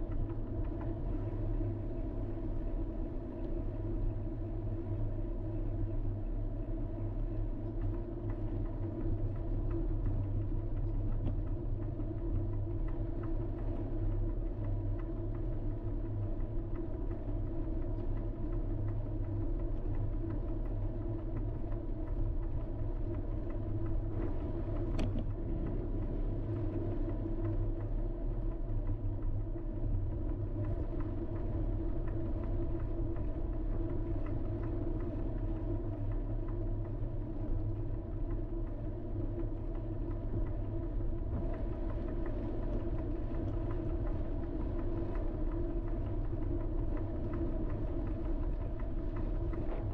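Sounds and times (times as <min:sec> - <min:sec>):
vehicle rumbling: 0:20.3 - 0:49.9.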